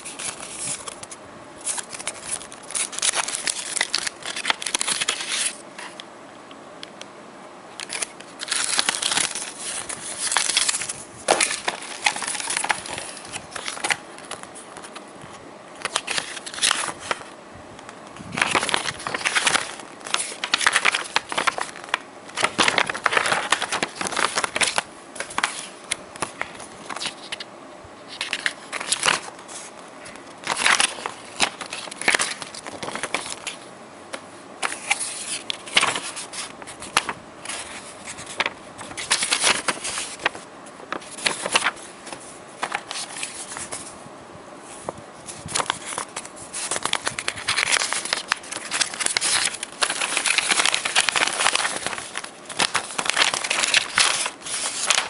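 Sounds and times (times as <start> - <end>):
paper and cardboard rustling: 0.0 - 6.0, 7.8 - 17.3, 18.2 - 27.5, 28.1 - 44.0, 44.6 - 55.0.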